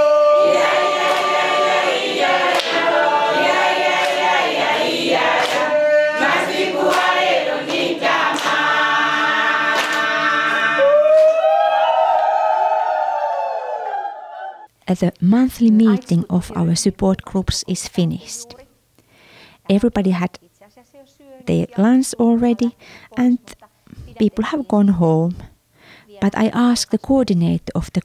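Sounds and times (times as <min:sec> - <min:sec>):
congregation singing unaccompanied: 0:00.0 - 0:10.9.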